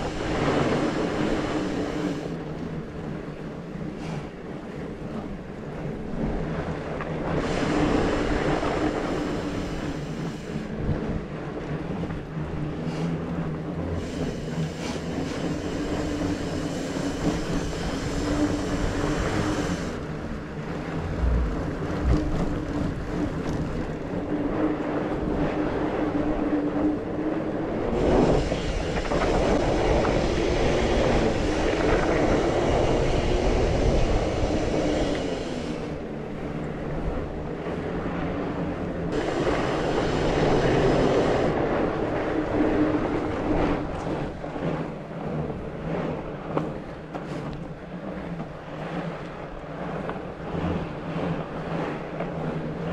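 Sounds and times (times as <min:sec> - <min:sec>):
bike tyres rolling on dirt: 0:00.0 - 0:38.5
bike rattling: 0:14.5 - 0:26.9.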